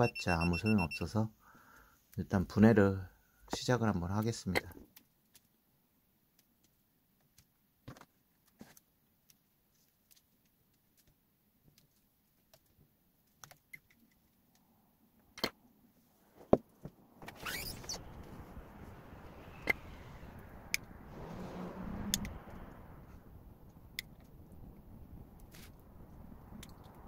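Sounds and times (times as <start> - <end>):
steady rushing noise: 16.9 - 27.0.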